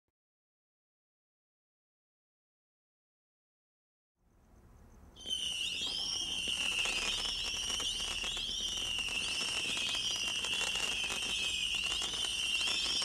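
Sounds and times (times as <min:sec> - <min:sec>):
firework crackling and pops: 0:05.2 - 0:13.0
shrill firework whistles: 0:05.2 - 0:13.0.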